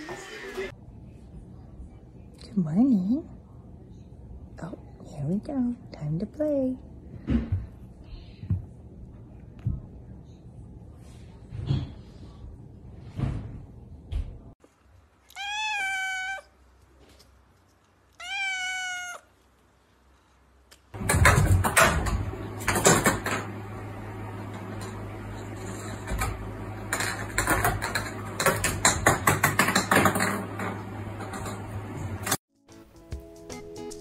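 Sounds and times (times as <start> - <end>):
kitten meowing: 15.3 - 16.5, 18.2 - 19.3
knocks and clatters: 21.0 - 23.6, 25.7 - 32.4.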